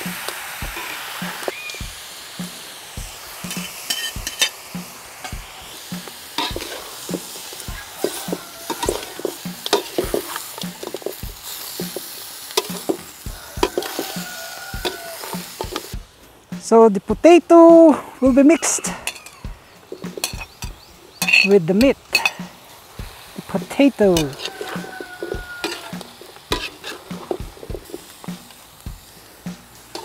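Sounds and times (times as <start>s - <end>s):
metal spatula scraping wok: 0.0s - 1.7s, 3.3s - 16.8s, 18.6s - 30.0s
meat sizzling in oil: 0.0s - 17.3s, 18.4s - 30.0s.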